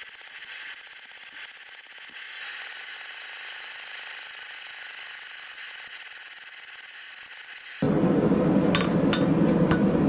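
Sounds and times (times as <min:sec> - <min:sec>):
hammer tapping on steel anvil: 0:08.7 - 0:09.9.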